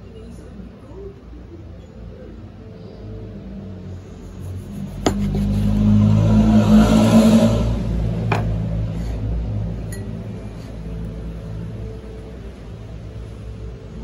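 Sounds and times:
knife chopping on plastic board: 0:05.0 - 0:05.6.

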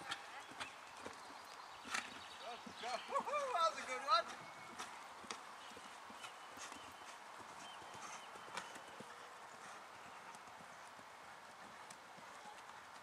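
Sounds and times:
horse hoofbeats on sand: 0:00.0 - 0:13.0.

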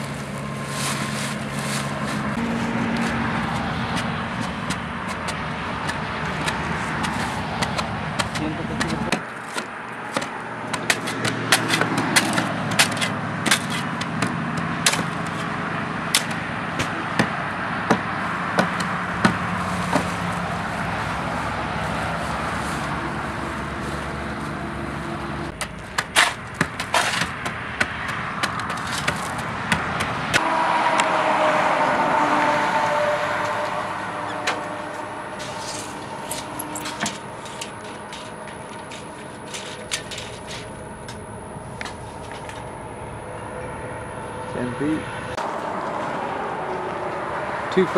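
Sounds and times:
shovels scraping into gravel: 0:00.0 - 0:03.2, 0:26.2 - 0:27.3
mechanical hum: 0:30.4 - 0:47.6.

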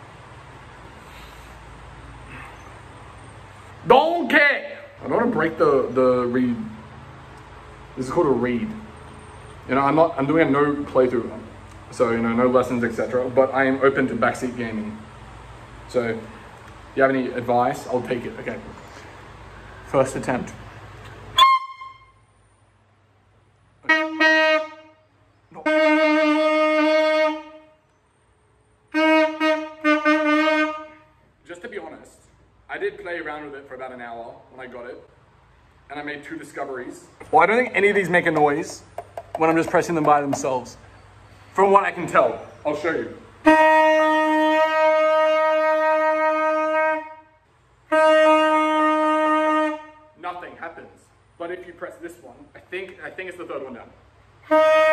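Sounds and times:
saxophone honking notes: 0:21.3 - 0:22.3, 0:23.8 - 0:27.8, 0:28.9 - 0:31.2, 0:43.4 - 0:50.2, 0:54.4 - 0:54.9.

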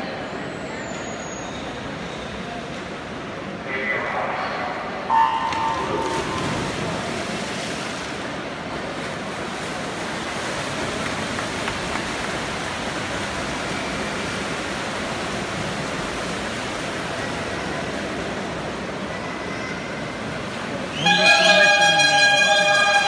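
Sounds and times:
swimmers splashing: 0:05.1 - 0:23.0.

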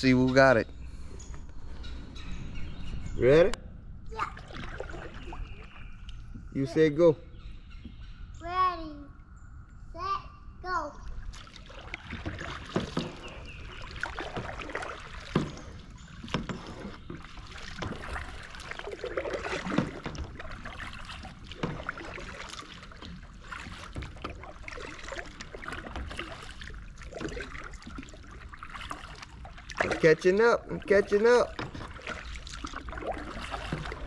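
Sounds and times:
water washing along hull: 0:04.1 - 0:07.0, 0:11.1 - 0:34.0
kayak paddle strokes splashing: 0:04.2 - 0:06.1, 0:11.1 - 0:34.0.

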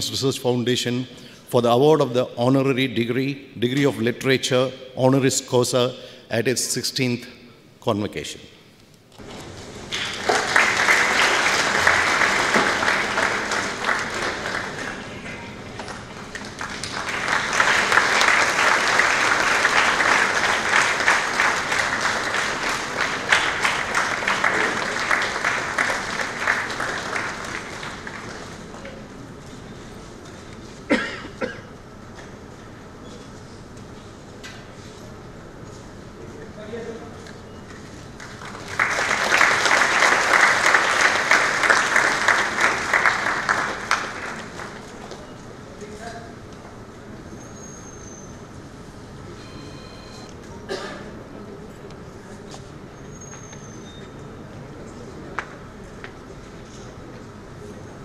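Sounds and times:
audience applauding: 0:09.4 - 0:29.1, 0:38.1 - 0:45.3.

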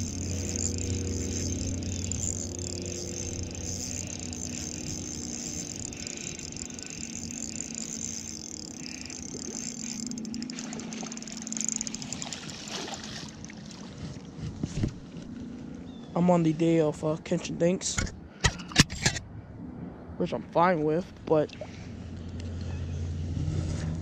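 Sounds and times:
spinning reel cranking: 0:00.0 - 0:12.7
fish splashing in water: 0:08.7 - 0:13.9.

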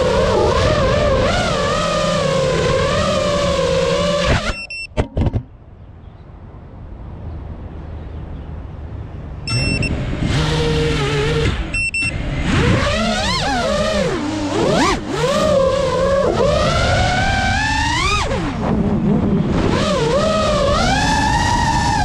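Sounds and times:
quadcopter motors whining: 0:00.0 - 0:04.8, 0:09.5 - 0:22.0
short high beeps: 0:04.4 - 0:05.0, 0:09.5 - 0:09.9, 0:11.7 - 0:12.2.

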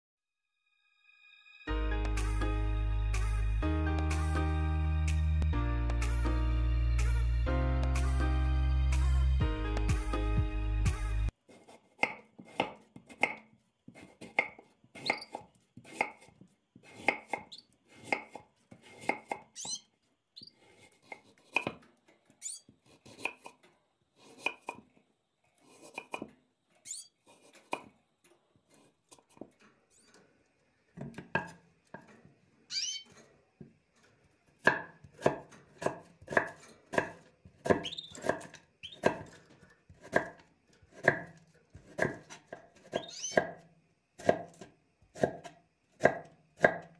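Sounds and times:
knife chopping on wooden board: 0:11.5 - 0:19.5, 0:20.6 - 0:21.8, 0:22.8 - 0:23.6, 0:24.2 - 0:24.9, 0:25.7 - 0:26.3, 0:27.3 - 0:27.9, 0:31.0 - 0:32.1, 0:34.6 - 0:39.3, 0:39.9 - 0:43.6, 0:44.2 - 0:46.9.

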